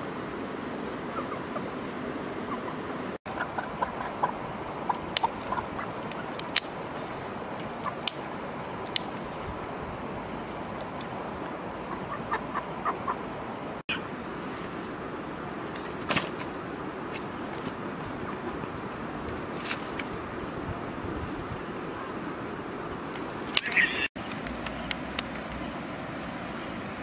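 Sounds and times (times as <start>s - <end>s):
twigs snapping: 4.9s - 6.8s, 7.6s - 9.7s, 19.5s - 20.1s, 23.1s - 25.6s
bird chirps: 23.5s - 24.9s.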